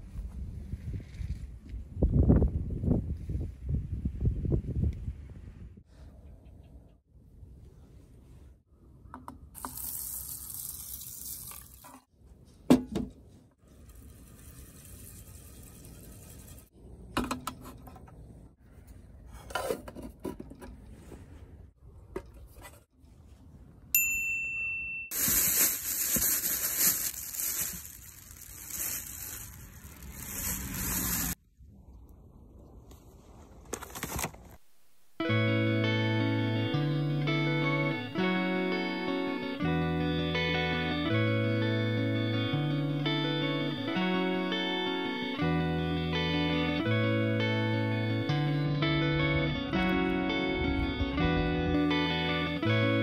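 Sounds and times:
water pouring over rice: 9.6 - 11.9.

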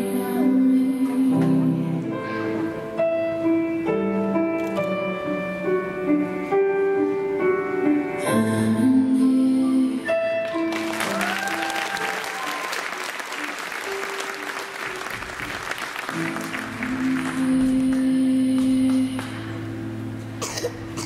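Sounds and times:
audience applause: 10.5 - 18.2.

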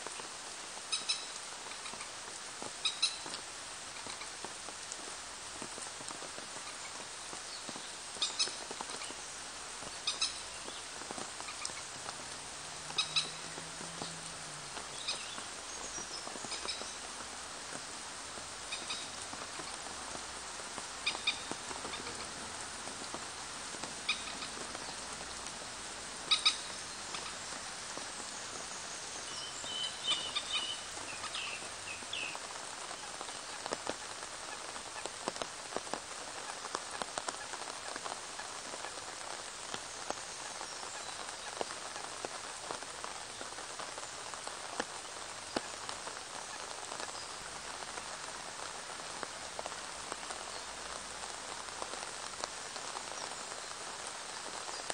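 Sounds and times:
rain falling on pond: 0.0 - 54.9
high chirping calls: 29.2 - 32.4.

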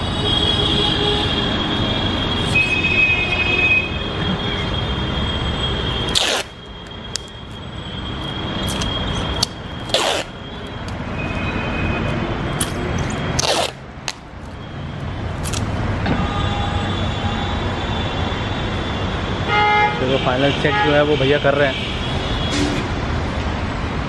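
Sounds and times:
street traffic rumbling: 0.0 - 24.0
car horn: 16.1 - 17.7, 19.5 - 22.8.

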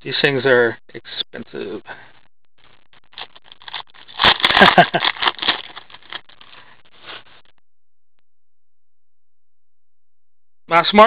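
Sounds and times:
foil wrapper crinkling and tearing: 3.0 - 7.2.

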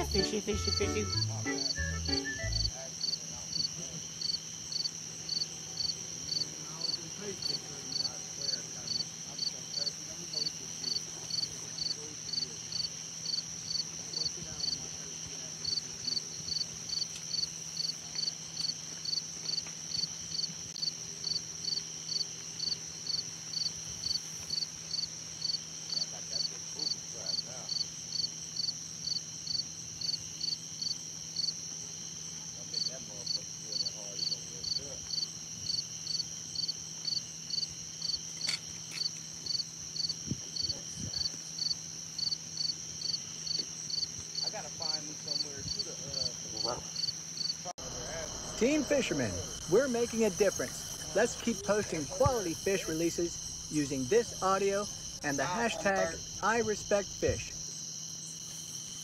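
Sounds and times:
insect chirping in pulses: 0.0 - 59.0
insect high-pitched trill: 0.0 - 59.0
faint low hum: 47.6 - 57.6.

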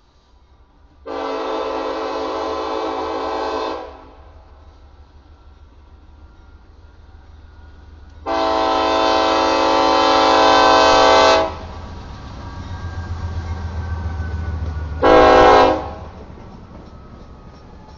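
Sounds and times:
train wheels on rails: 0.0 - 17.9
locomotive air horn: 1.1 - 4.3, 8.2 - 11.8, 15.0 - 16.1.

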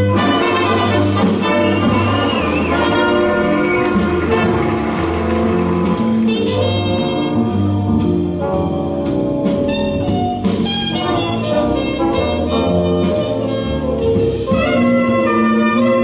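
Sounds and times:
music over loudspeakers: 0.2 - 8.2.

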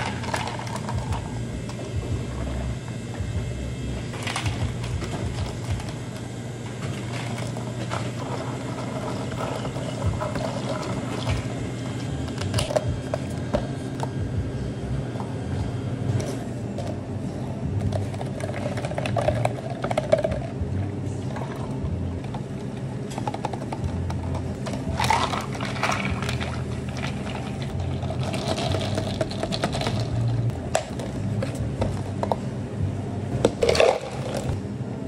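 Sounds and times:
steady low hum: 0.0 - 35.0
coffee pouring into cup: 6.9 - 12.9, 24.6 - 31.1, 33.6 - 34.6
ice rattling in cup: 17.9 - 20.5, 24.6 - 31.0, 33.6 - 34.6.

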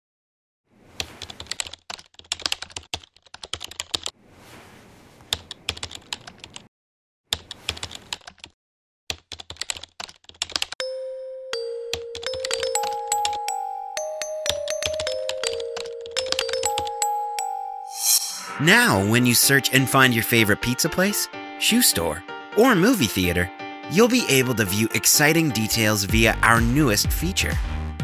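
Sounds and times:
computer keyboard typing: 1.2 - 4.1, 5.3 - 6.7, 7.3 - 10.8, 11.8 - 17.4
chiming mallet percussion music: 10.8 - 19.2.

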